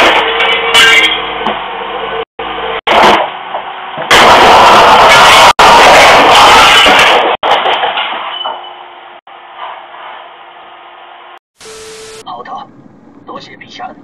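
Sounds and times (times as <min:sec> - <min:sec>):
van crashing through garage door: 0:04.1 - 0:08.4.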